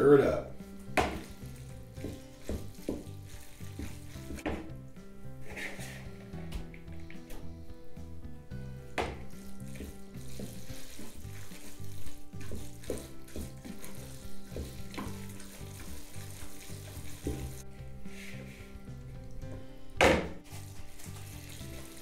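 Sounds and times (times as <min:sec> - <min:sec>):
background music: 0:00.0 - 0:22.0
spoon stirring wet macaroni: 0:01.2 - 0:04.4, 0:09.3 - 0:17.6.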